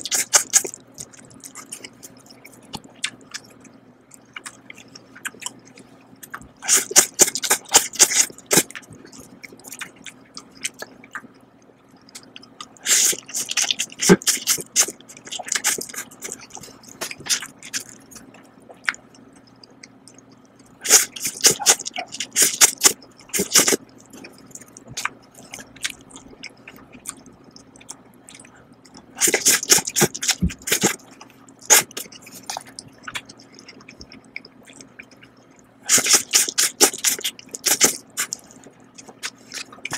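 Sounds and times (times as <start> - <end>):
soft chewing: 0.0 - 39.9
slurping noodles: 6.6 - 8.8, 12.8 - 17.9, 20.8 - 24.4, 29.2 - 31.0, 31.6 - 32.6, 35.9 - 39.9.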